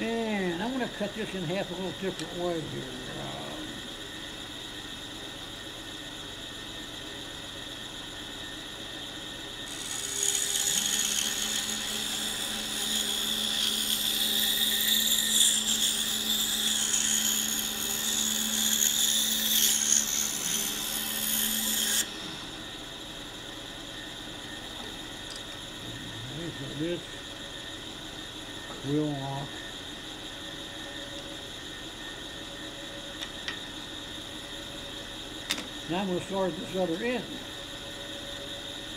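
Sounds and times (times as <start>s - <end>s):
scroll saw running: 9.6s - 22.8s
saw blade cutting wood: 9.7s - 22.1s.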